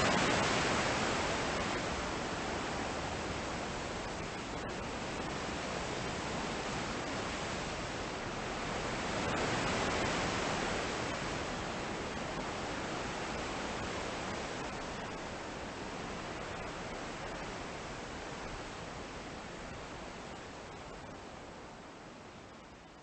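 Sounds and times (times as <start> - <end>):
steady rushing hiss: 0.0 - 23.0.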